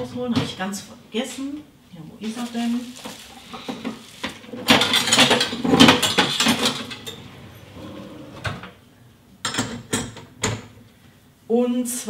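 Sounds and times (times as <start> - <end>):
utensils clattering in drawer: 3.6 - 8.5.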